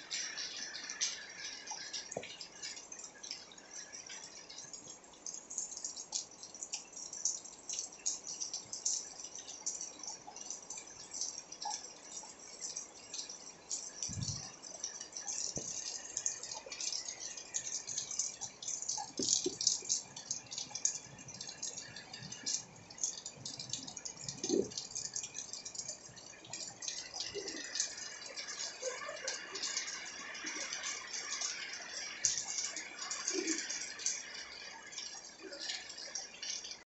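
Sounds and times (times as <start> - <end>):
heavy rain on pavement: 23.6 - 34.7.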